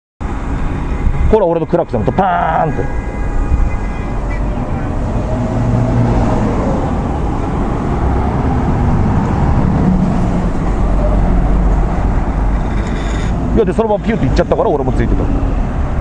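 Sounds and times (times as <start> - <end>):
car engines humming: 0.2 - 16.0.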